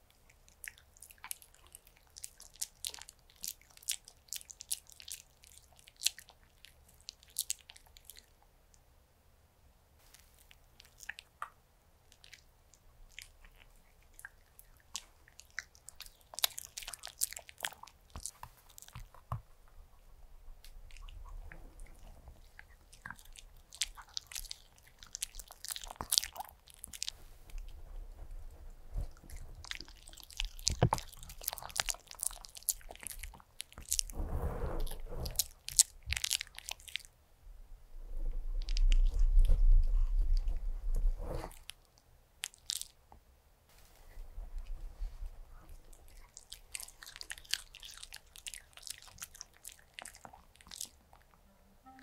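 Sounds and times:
dog chewing food: 0:13.1 - 0:20.1, 0:20.7 - 0:27.8, 0:28.9 - 0:34.1, 0:35.2 - 0:37.1, 0:44.6 - 0:51.4
low rumble: 0:37.4 - 0:41.5.

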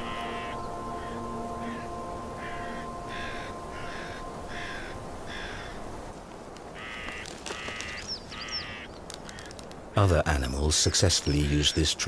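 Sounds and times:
crows cawing: 0:00.0 - 0:06.0, 0:06.7 - 0:09.6.

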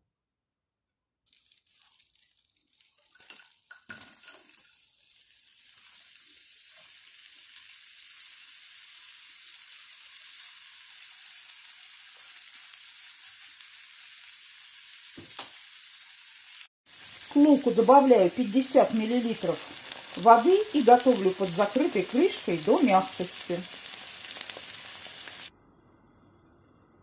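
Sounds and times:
spatula stirring in a pan: 0:01.3 - 0:14.3, 0:16.9 - 0:25.5
onion sizzling in a frying pan: 0:01.3 - 0:25.5
knocks in a pan: 0:15.2 - 0:15.6.

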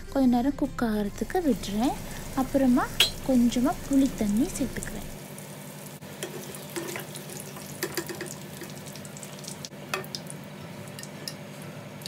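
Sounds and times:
curry sizzling in a pan: 0:01.5 - 0:12.0
spoon clicking against pan: 0:07.8 - 0:08.7, 0:10.9 - 0:11.4.

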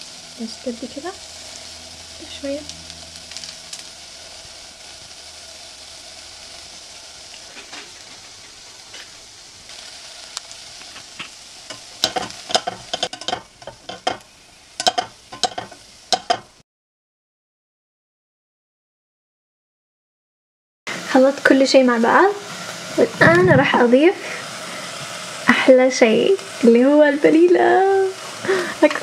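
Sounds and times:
onions frying in oil: 0:00.0 - 0:16.6, 0:20.9 - 0:29.0
spatula scraping a pot: 0:11.7 - 0:14.2, 0:14.8 - 0:16.5.

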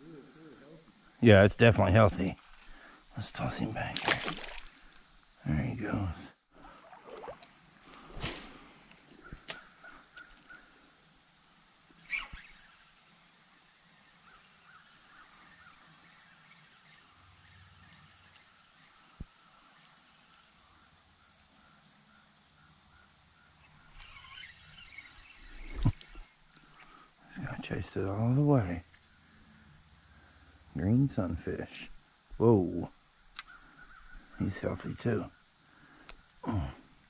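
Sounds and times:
insect chorus drone: 0:00.0 - 0:37.0
faint chirping: 0:11.9 - 0:37.0.

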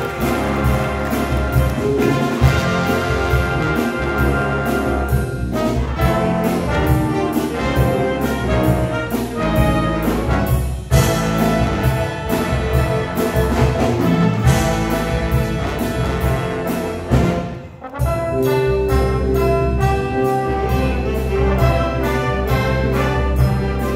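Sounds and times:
jazz big band playing: 0:00.0 - 0:23.9.

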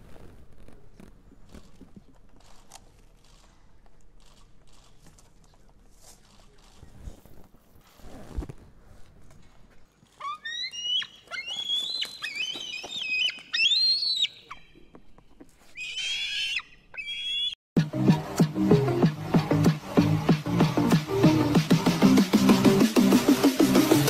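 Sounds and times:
eagle screech: 0:10.2 - 0:14.8, 0:15.6 - 0:17.6
eagle whistling calls: 0:10.2 - 0:14.8
electronic dance music: 0:17.8 - 0:24.0.

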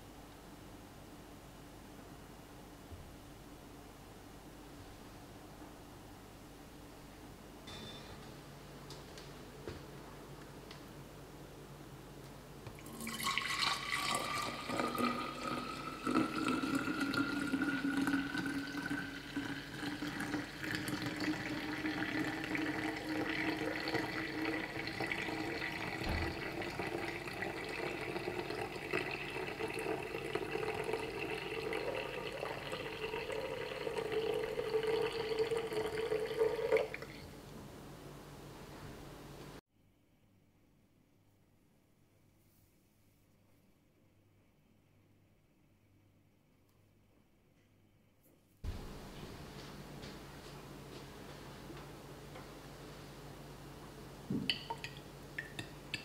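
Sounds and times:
milk pouring into a flask: 0:12.7 - 0:37.2.

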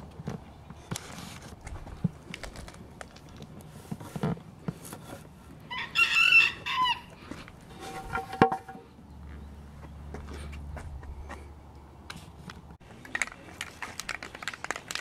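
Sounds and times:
faint clicks and rustles: 0:00.0 - 0:05.6, 0:11.3 - 0:15.0
rooster crowing: 0:05.7 - 0:07.2.

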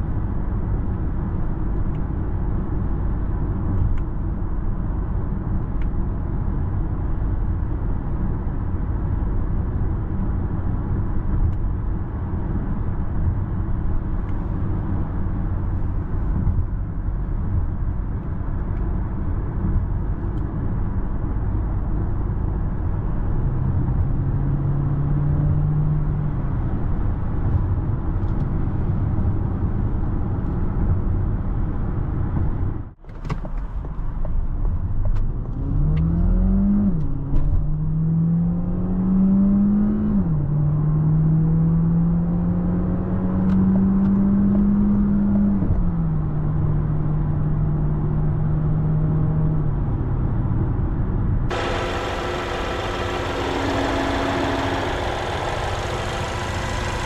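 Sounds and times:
road and tyre noise in car cabin: 0:00.0 - 0:57.0
low hum: 0:51.5 - 0:57.0.

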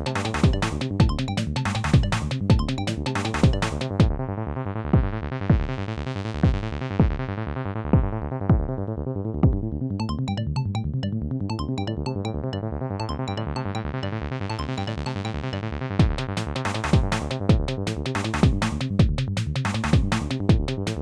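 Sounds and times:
repeating synthesizer keyboard pattern: 0:00.0 - 0:04.3, 0:10.0 - 0:17.8.

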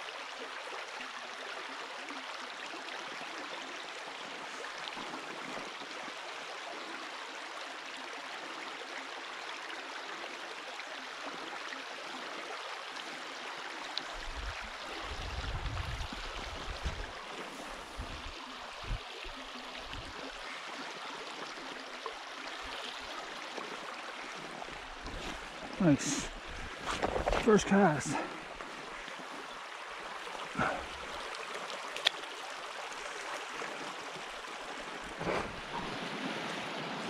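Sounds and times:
stream trickling and gurgling: 0:00.0 - 0:37.0
low rumble on microphone: 0:14.2 - 0:17.1.

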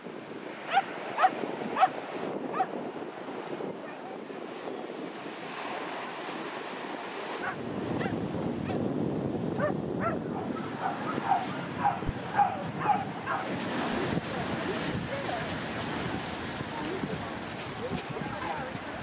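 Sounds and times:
surf washing on shingle: 0:00.0 - 0:19.0
wind buffeting microphone: 0:00.0 - 0:19.0
dog yapping: 0:00.7 - 0:01.9, 0:09.6 - 0:13.5.

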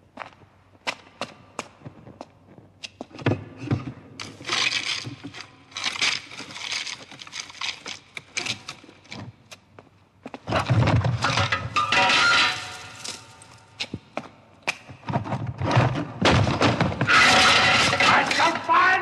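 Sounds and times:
jewellery clattering and clinking: 0:11.2 - 0:13.6.

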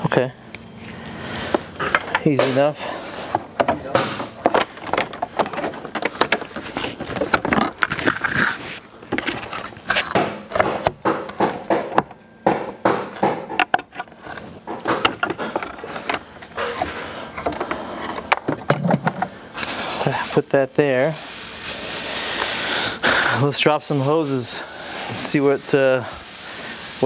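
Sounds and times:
plastic and metal parts rattling: 0:03.3 - 0:12.2, 0:13.2 - 0:19.3.

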